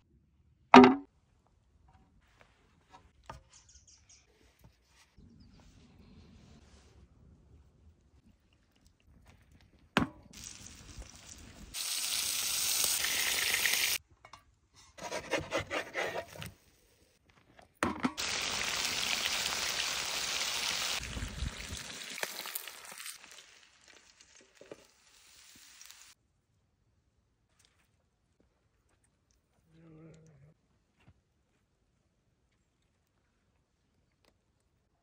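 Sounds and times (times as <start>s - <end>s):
fish sizzling in hot oil: 10.4s - 14.0s, 18.2s - 26.2s.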